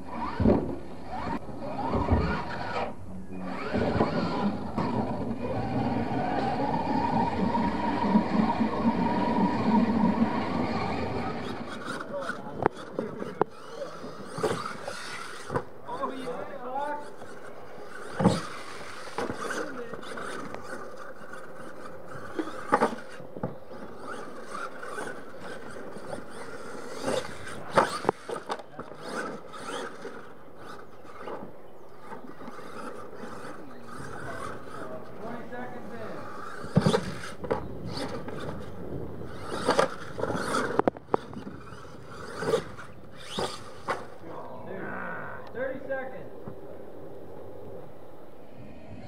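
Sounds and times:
toy truck motor humming: 0.0s - 44.2s
rc truck landing thumps: 0.2s - 0.8s, 14.2s - 15.7s, 18.0s - 21.4s, 22.2s - 30.2s, 36.4s - 38.7s, 39.4s - 44.2s
knocks and scrapes on dirt: 0.2s - 6.4s, 7.1s - 44.4s.

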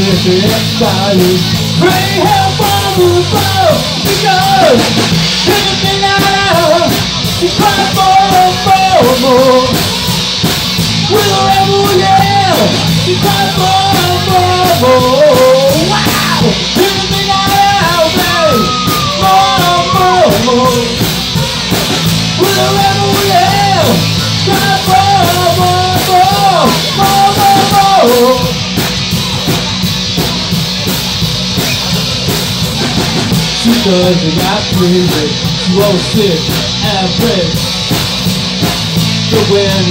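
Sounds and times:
vocalist singing: 0.0s - 30.5s, 32.8s - 38.2s, 39.2s - 39.9s
drums: 0.0s - 39.9s
electric guitars: 0.0s - 39.9s
keyboard: 0.0s - 39.9s.

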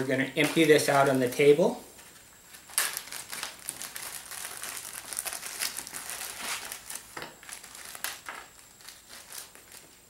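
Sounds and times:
plastic bag crinkling: 2.5s - 10.0s.

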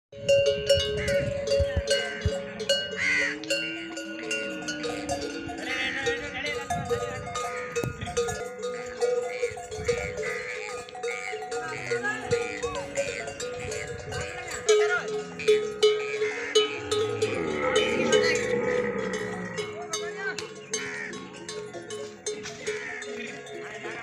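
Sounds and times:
metal neck bells clanking: 0.2s - 24.0s.

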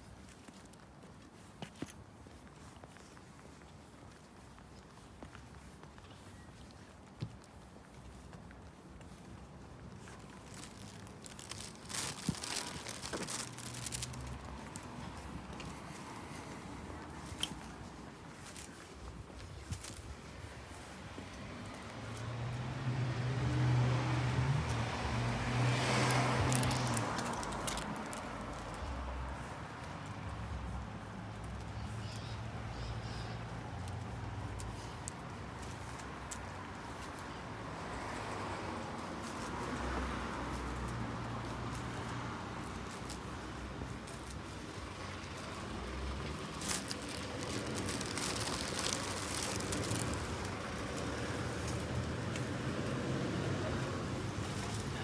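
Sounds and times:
distant traffic hum: 0.0s - 55.0s
crackling high rustle: 10.0s - 14.9s, 25.9s - 29.5s, 45.3s - 52.3s
car driving past: 21.4s - 27.9s.

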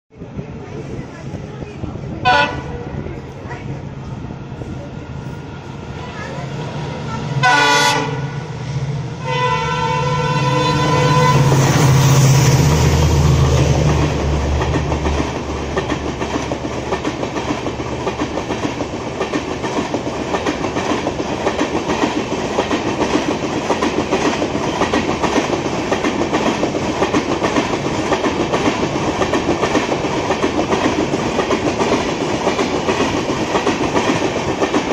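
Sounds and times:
diesel locomotive engine: 0.1s - 34.9s
train wheels clickety-clack: 10.8s - 34.9s.

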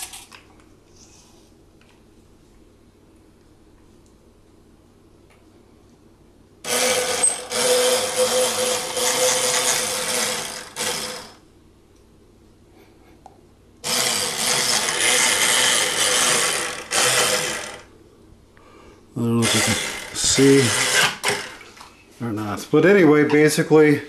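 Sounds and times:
electric motor hum: 6.6s - 11.4s, 13.8s - 17.9s, 19.2s - 21.6s.

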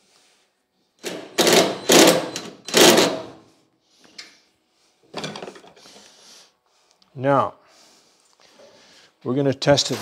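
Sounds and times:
cordless drill driving a screw: 1.0s - 3.2s.

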